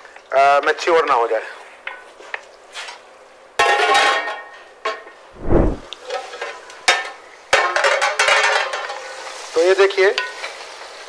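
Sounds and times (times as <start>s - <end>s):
chicken sizzling in a pot: 6.0s - 11.0s.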